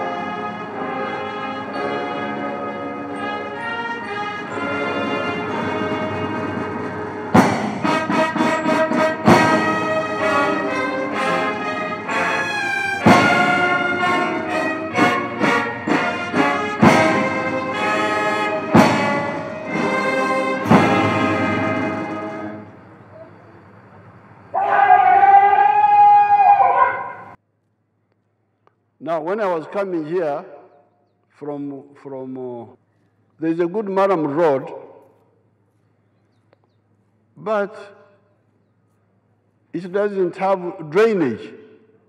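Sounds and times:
brass band playing chords: 0.0 - 23.4
loud percussion strikes: 4.8 - 11.5, 13.0 - 22.8.

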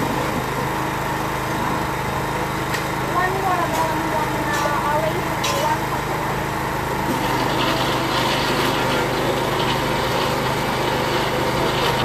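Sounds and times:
blender motor whirring: 6.2 - 12.0.

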